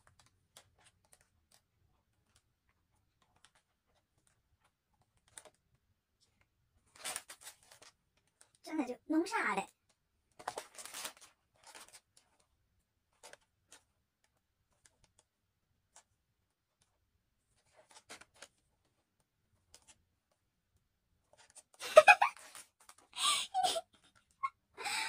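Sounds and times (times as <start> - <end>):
paper page ticks and rustles: 0.0 - 23.2, 23.9 - 24.4
page flipping over: 6.4 - 8.6, 10.4 - 12.4, 13.1 - 13.9, 17.6 - 18.7.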